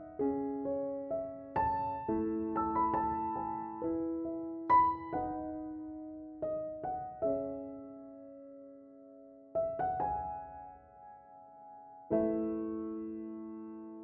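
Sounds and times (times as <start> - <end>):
slow soft piano music: 0.0 - 14.0.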